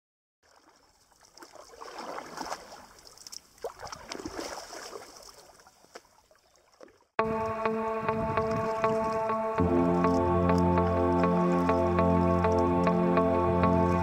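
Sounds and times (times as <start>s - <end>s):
water splashing and trickling: 0.4s - 7.2s, 8.3s - 14.0s
small clicks and gurgles: 2.7s - 4.4s.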